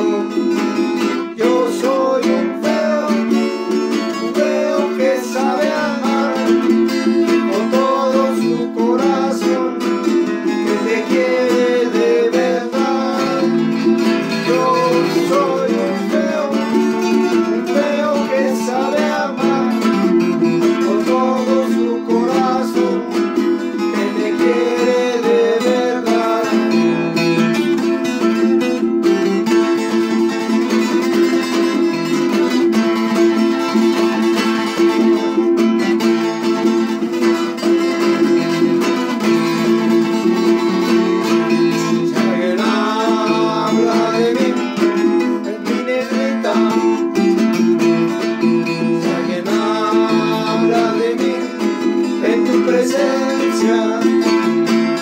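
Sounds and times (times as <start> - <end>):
man singing: 0.0 - 28.3, 39.4 - 55.0
acoustic guitars strumming: 0.0 - 55.0.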